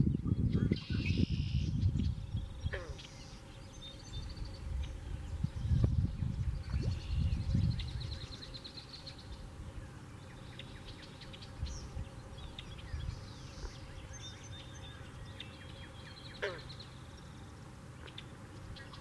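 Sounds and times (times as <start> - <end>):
wind noise on microphone: 0.0 - 3.0, 4.0 - 8.6, 11.4 - 14.0
small birds chirping: 0.0 - 19.0.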